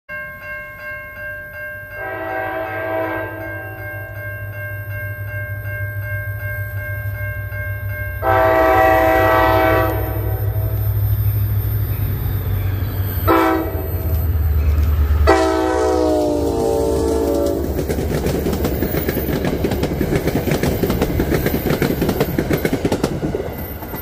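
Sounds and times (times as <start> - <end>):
locomotive air horn blasts: 2.0 - 4.0, 8.2 - 10.9, 13.3 - 14.2, 15.2 - 17.7
diesel locomotive rumble: 6.2 - 24.0.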